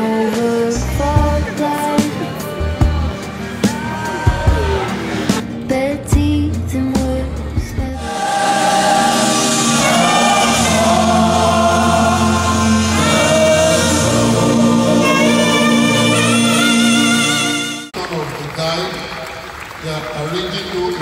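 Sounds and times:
live band playing: 0:06.6 - 0:18.0
gospel choir singing: 0:08.0 - 0:17.9.

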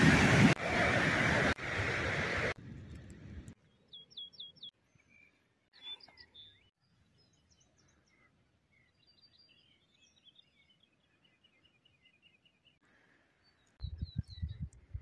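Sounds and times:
small bird chirps: 0:13.4 - 0:15.0.

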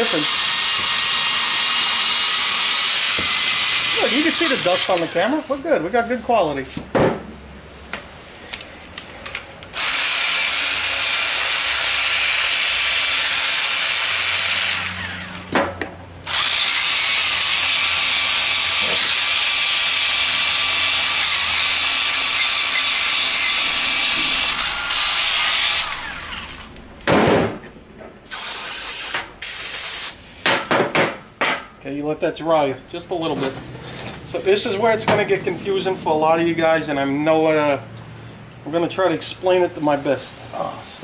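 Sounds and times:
power tool grinding: 0:00.0 - 0:05.8, 0:09.7 - 0:15.6, 0:16.2 - 0:27.0, 0:28.3 - 0:30.2.

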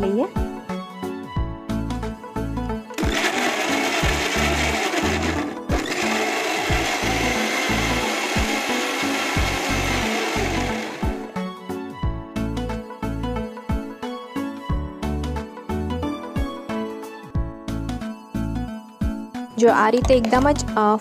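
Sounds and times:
mixer grinder running: 0:03.0 - 0:11.4.

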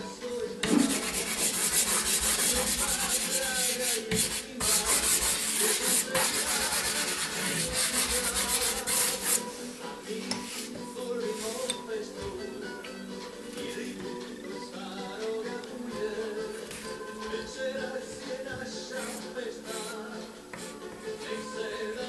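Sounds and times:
pastel rubbing on paper: 0:00.6 - 0:09.6, 0:18.9 - 0:21.4.

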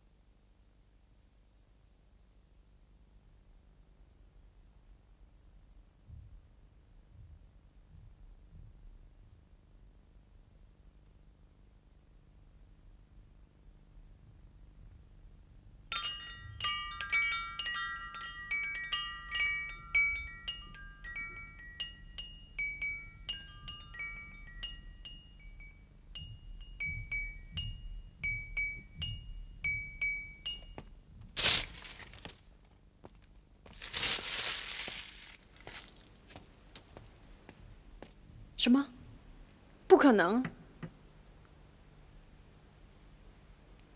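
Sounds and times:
wind chimes ringing: 0:15.9 - 0:30.9
soft rustling noise: 0:26.2 - 0:39.6
loud rustling scrape: 0:33.7 - 0:35.9.

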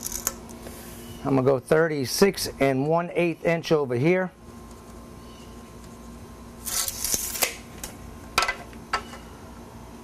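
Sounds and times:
tape measure blade retracting: 0:00.0 - 0:00.4, 0:06.6 - 0:07.6.

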